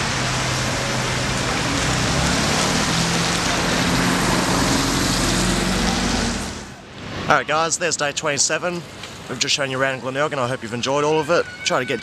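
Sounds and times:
engine hum: 0:00.0 - 0:07.0
tyres hissing on wet road: 0:00.0 - 0:09.7.

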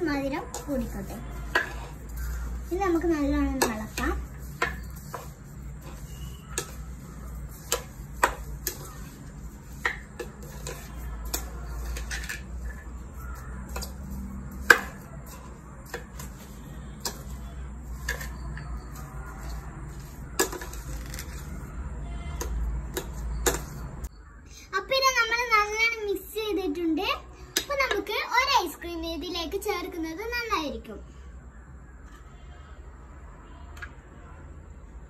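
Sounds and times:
plastic spoon scraping plastic bowl: 0:00.2 - 0:21.7.

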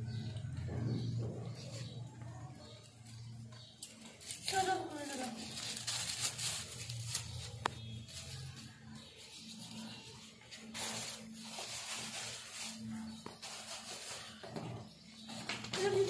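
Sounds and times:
plastic bag rustling: 0:04.0 - 0:16.0.

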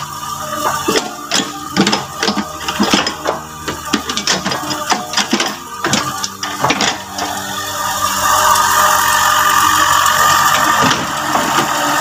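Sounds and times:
excavator diesel engine running: 0:00.0 - 0:08.0, 0:09.2 - 0:12.0
bucket scooping mud and debris: 0:00.4 - 0:07.6
metal clanks and knocks: 0:00.5 - 0:07.5, 0:10.6 - 0:12.0.

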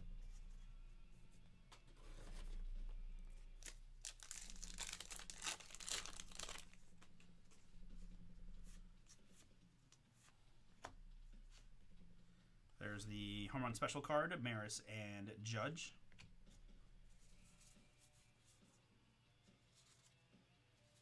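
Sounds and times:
wrapper tearing and crinkling: 0:03.6 - 0:06.8.

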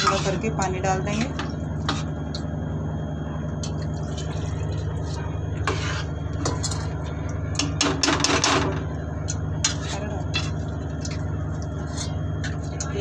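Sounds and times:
steel spoon stirring and clattering: 0:00.0 - 0:00.5, 0:05.6 - 0:08.8, 0:09.6 - 0:13.0
steady low hum: 0:00.0 - 0:13.0.

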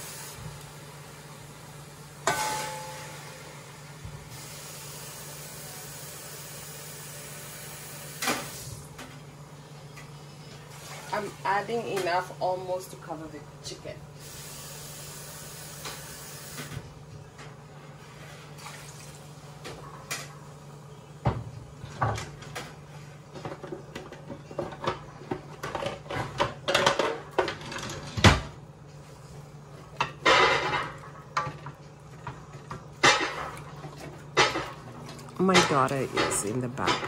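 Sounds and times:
kitchen utensils clattering: 0:21.8 - 0:28.5, 0:30.0 - 0:37.0.

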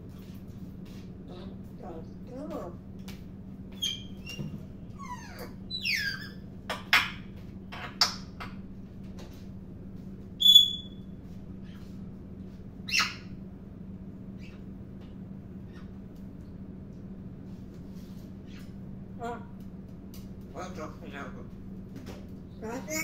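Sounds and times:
parrot whistling: 0:10.4 - 0:11.0
parrot squawk: 0:12.9 - 0:13.3.

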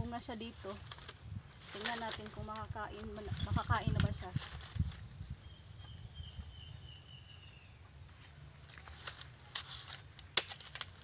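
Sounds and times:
sharp clicks of dry fronds: 0:00.0 - 0:11.0.

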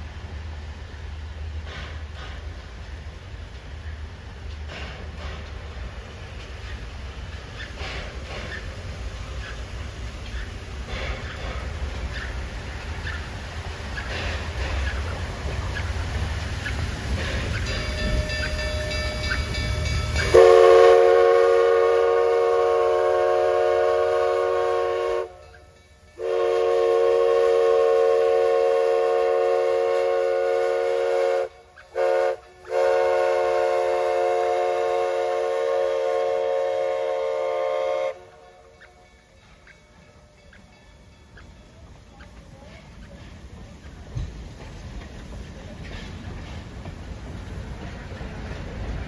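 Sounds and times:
steam locomotive whistle blasts: 0:17.8 - 0:25.5, 0:26.2 - 0:38.9.

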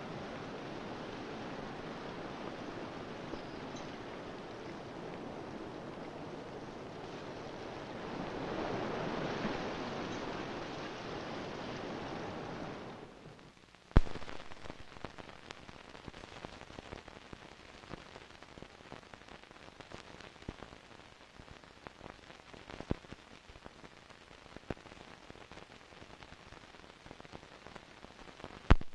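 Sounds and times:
ocean surf: 0:00.0 - 0:13.4, 0:14.0 - 0:16.1
film crackle and pops: 0:00.0 - 0:28.9.

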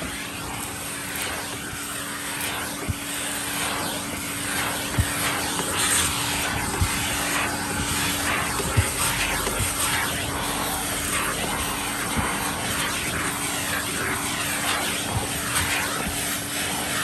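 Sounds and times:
brush scrubbing floor mat: 0:00.0 - 0:17.0
vacuum cleaner running: 0:00.0 - 0:17.0.

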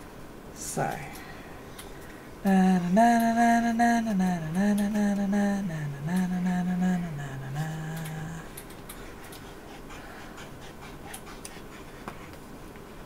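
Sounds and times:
person humming a slow tune: 0:02.4 - 0:08.6.

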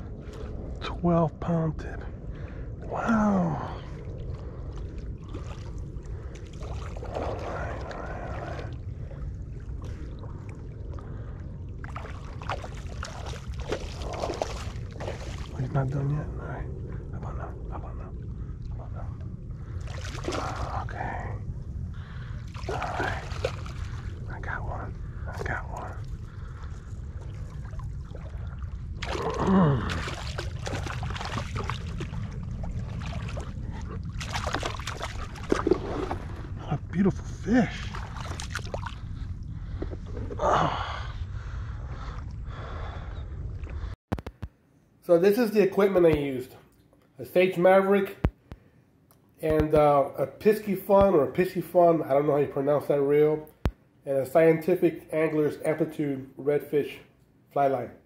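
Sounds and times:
wind rumbling on microphone: 0:00.0 - 0:44.6
fish splashing in shallow water: 0:04.7 - 0:08.8, 0:11.7 - 0:15.6, 0:19.8 - 0:20.8, 0:22.4 - 0:24.2, 0:26.7 - 0:36.5, 0:37.8 - 0:39.1
fish splashing in water: 0:29.0 - 0:36.3.

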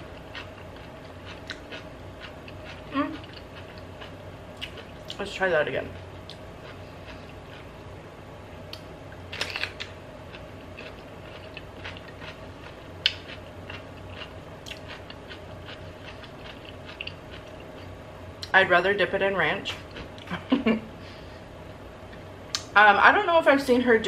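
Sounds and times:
chewing with wet mouth clicks: 0:00.2 - 0:05.2, 0:08.7 - 0:18.5.

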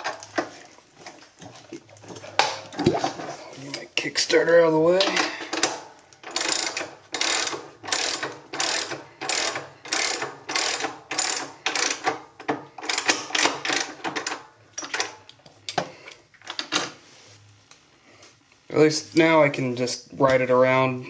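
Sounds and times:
ratchet wrench clicking: 0:05.6 - 0:12.2, 0:12.8 - 0:14.4.

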